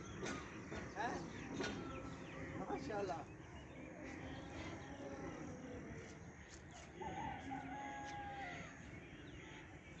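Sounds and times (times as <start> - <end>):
rooster crowing: 7.0 - 8.8.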